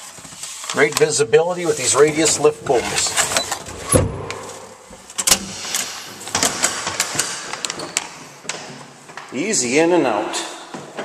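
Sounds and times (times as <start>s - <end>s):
low thump: 3.7s - 5.6s.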